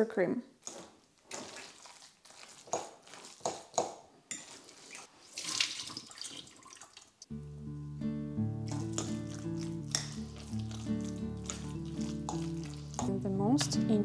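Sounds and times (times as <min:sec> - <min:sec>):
fork scraping ceramic bowl: 0:04.3 - 0:05.1, 0:08.7 - 0:13.2
water splashing into sink: 0:04.9 - 0:07.2.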